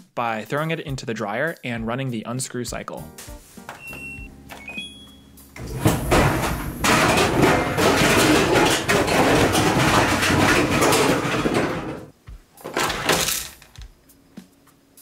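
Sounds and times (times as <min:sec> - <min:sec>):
dryer drum rumble: 0:05.6 - 0:13.2
plastic toy clattering in dryer: 0:05.6 - 0:13.8.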